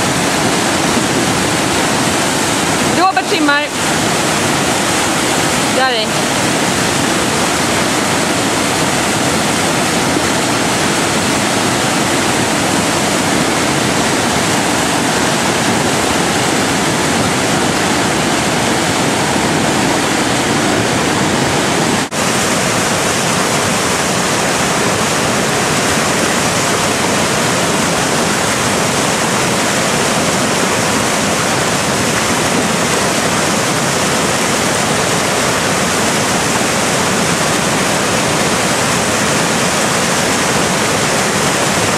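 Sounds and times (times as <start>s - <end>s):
whitewater river rapids rushing: 0.0s - 41.9s.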